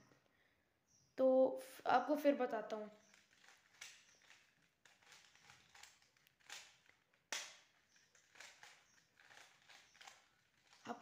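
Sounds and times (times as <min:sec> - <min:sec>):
puzzle cube clicking: 0:02.9 - 0:11.0.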